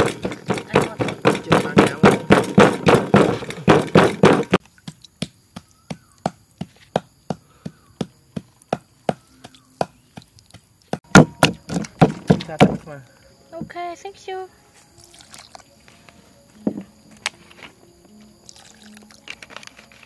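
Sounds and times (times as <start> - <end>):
pestle pounding in a mortar: 0.0 - 12.8.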